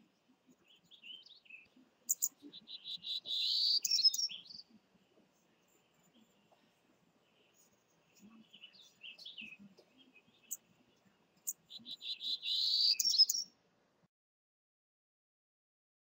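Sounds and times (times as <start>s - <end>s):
bird singing: 0.0s - 4.8s, 7.2s - 13.6s.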